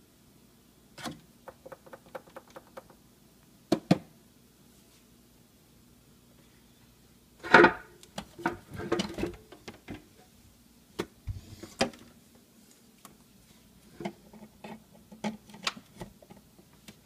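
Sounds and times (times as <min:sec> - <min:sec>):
small knocks and clicks: 0:01.0 - 0:03.0.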